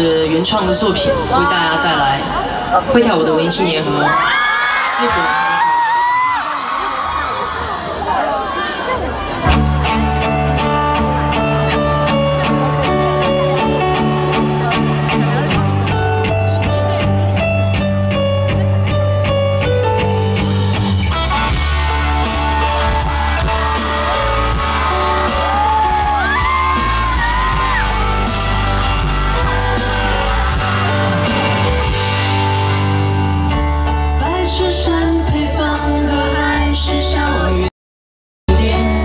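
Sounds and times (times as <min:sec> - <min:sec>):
drums: 0:09.2 - 0:37.4
electric guitar picking: 0:09.4 - 0:35.3
bass guitar: 0:09.4 - 0:37.7, 0:38.5 - 0:39.0.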